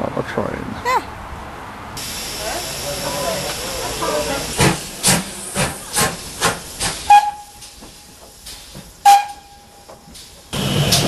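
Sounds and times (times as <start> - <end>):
steam locomotive exhaust chuffing: 2.0 - 11.0
steam whistle blasts: 7.1 - 7.6, 9.0 - 9.7.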